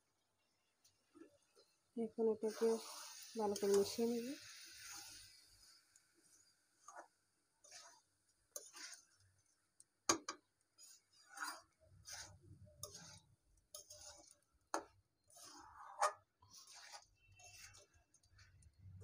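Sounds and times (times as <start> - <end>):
rice and lentils frying: 0.0 - 19.0
metal spatula scraping a pan: 2.2 - 19.0.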